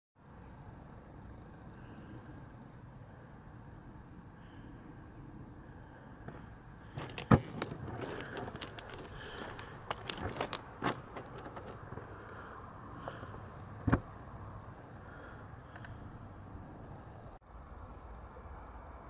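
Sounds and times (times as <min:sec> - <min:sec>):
low wind rumble: 0:00.2 - 0:19.0
handling knocks and crackles: 0:06.3 - 0:12.4.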